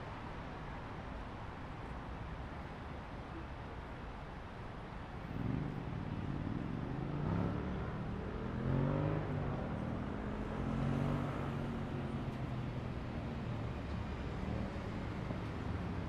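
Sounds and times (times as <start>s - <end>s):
city traffic hum: 0.0s - 16.0s
vehicle engine accelerating: 5.2s - 16.0s.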